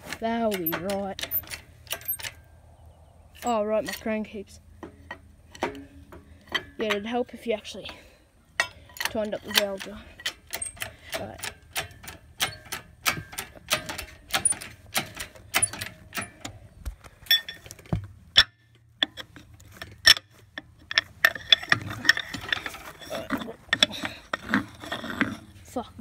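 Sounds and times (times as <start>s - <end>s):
hand ratchet clicking: 0.5s - 2.4s, 8.6s - 16.5s.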